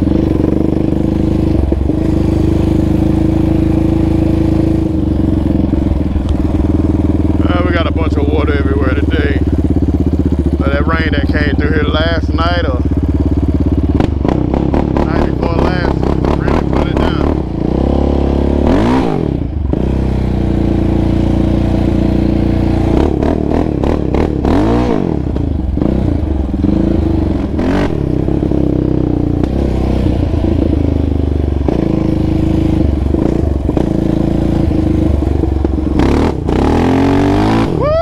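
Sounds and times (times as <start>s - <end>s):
atv engine revving: 0.0s - 38.0s.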